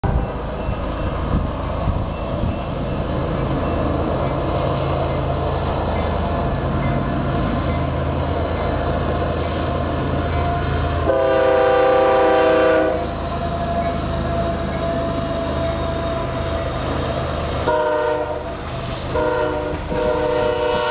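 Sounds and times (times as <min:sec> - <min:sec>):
diesel locomotives running: 0:00.0 - 0:20.9
train air horn blast: 0:10.3 - 0:16.9, 0:17.6 - 0:20.9.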